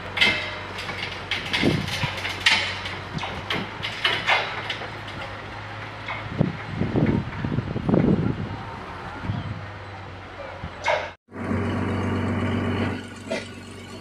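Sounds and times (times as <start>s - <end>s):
machinery clanks and knocks: 0.0s - 8.4s
low engine hum: 0.0s - 14.0s.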